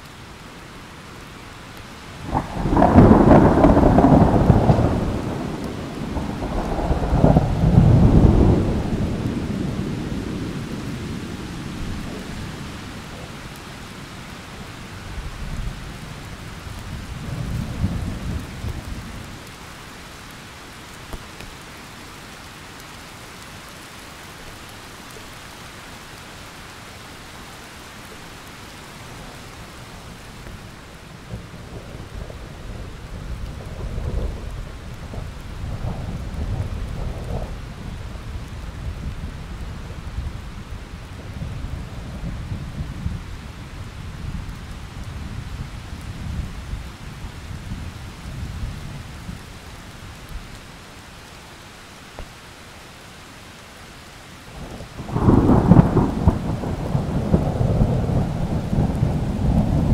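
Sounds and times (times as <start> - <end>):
steady rain: 0.0 - 59.9
rolling thunder: 2.2 - 12.7, 31.3 - 40.3, 54.6 - 59.9.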